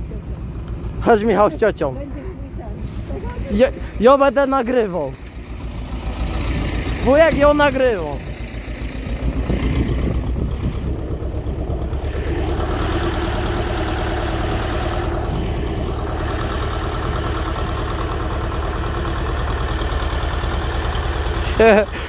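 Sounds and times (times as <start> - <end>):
tractor engine running: 0.0 - 22.0.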